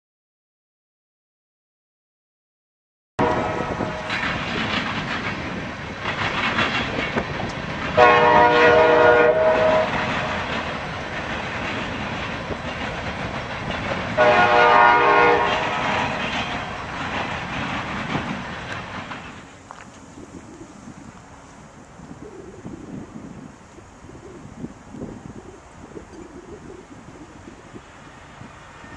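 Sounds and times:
locomotive air horn blasts: 3.2 - 4.2, 8.0 - 10.4, 14.2 - 16.8
freight train clattering: 3.2 - 20.4.

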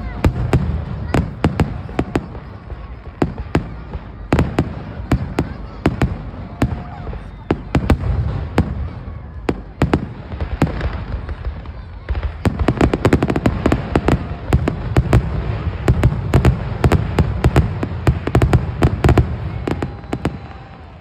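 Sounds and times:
fireworks bangs: 0.0 - 21.0.

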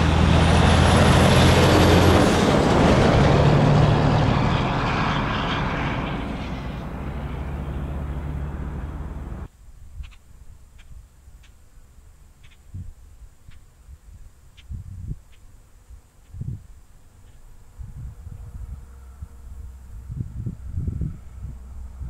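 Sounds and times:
truck diesel engine passing: 0.0 - 9.5, 17.6 - 22.0
small ticks: 12.4 - 12.7, 14.5 - 15.5.

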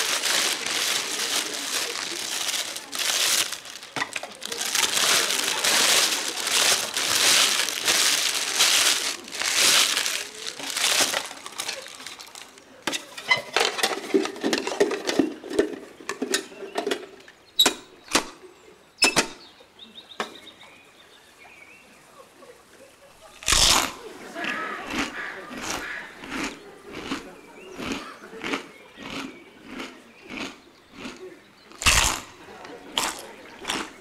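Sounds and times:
food wrapping crinkling: 0.0 - 15.2, 23.2 - 24.1, 24.9 - 27.2, 31.7 - 34.0.

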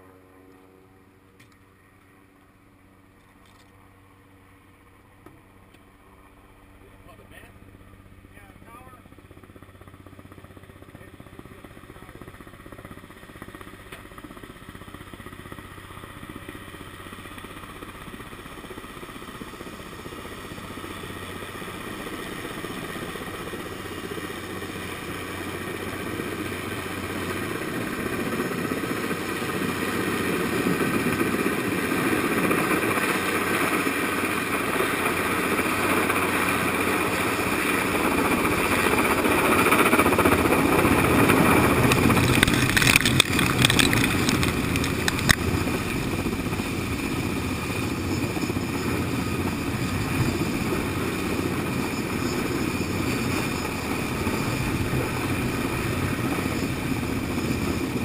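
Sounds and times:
helicopter engine and rotor: 0.0 - 58.0.

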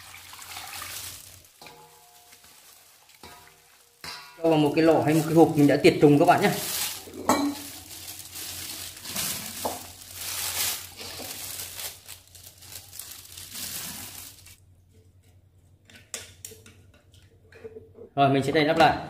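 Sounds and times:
rustling and crinkling: 0.0 - 15.7.

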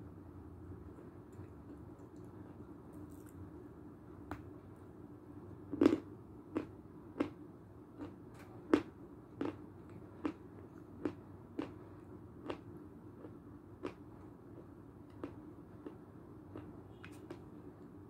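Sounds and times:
chewing dry crunches: 5.7 - 7.4, 8.0 - 14.0, 14.6 - 17.4.

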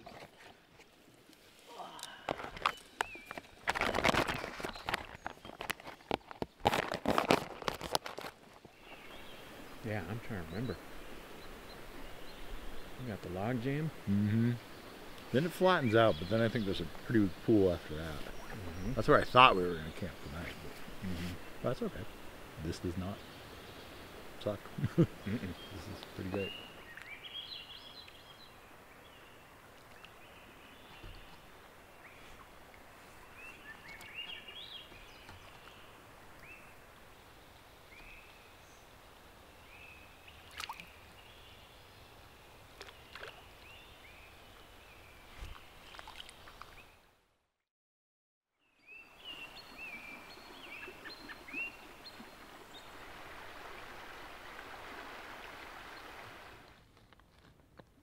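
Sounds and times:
flowing water hiss: 0.0 - 3.4, 8.4 - 46.8, 49.2 - 56.8
small birds chirping: 1.6 - 8.1, 8.7 - 38.9, 48.6 - 53.0.

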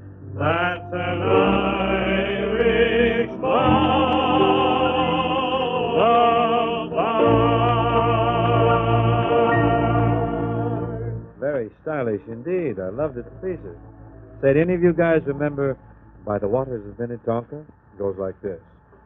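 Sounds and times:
orchestra: 0.0 - 11.5
man singing with vibrato: 0.4 - 10.9.

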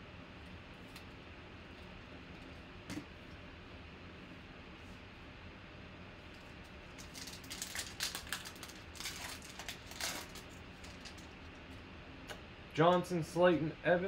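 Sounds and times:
foil wrapper tearing and crinkling: 6.9 - 11.3.

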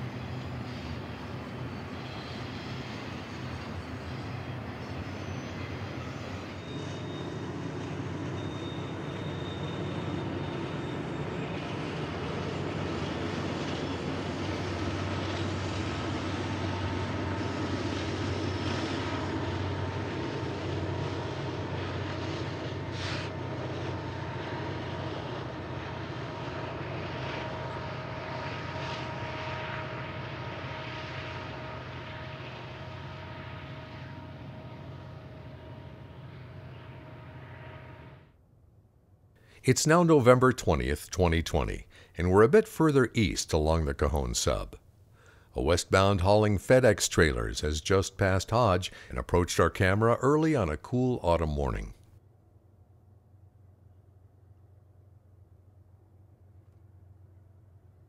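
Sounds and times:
steel wheels rumbling on rail: 0.0 - 38.3
diesel locomotive engines droning: 0.0 - 38.4, 39.4 - 52.1.

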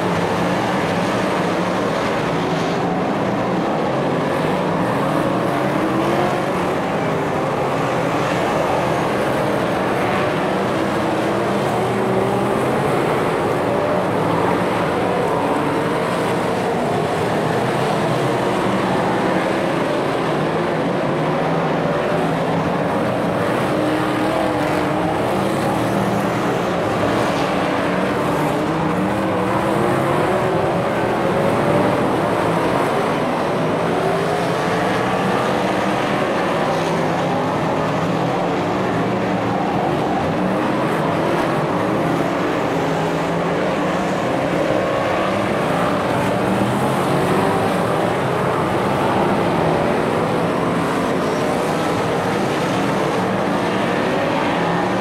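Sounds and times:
race car engines revving: 0.0 - 55.0.

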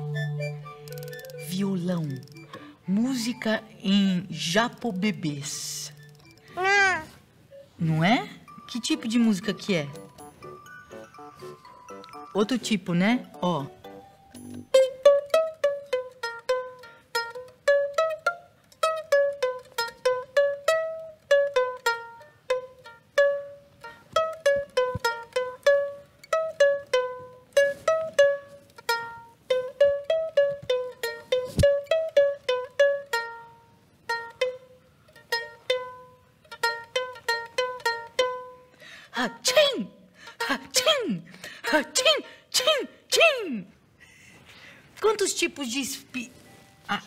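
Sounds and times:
ukulele plucked melody: 0.0 - 7.7, 8.4 - 38.7.

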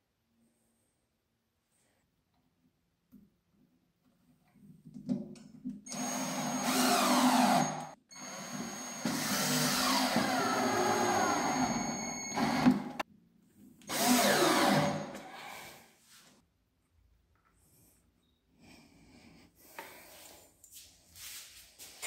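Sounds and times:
cordless drill driving screws: 5.9 - 13.0, 13.9 - 15.5.

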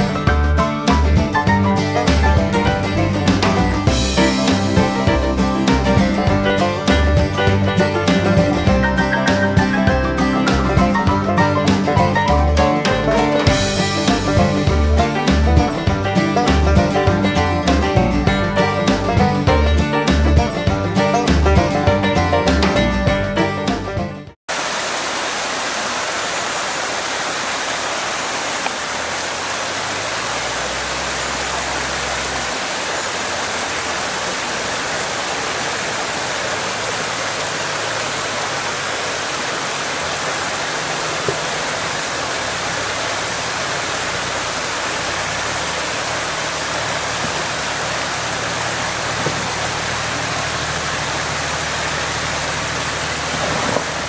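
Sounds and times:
stream rushing over rocks: 24.5 - 54.0
engine humming at low revs: 28.5 - 54.0.

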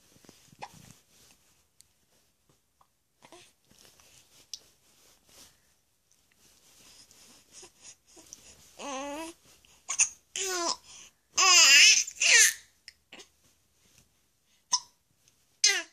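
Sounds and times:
baby cooing: 8.8 - 13.3.

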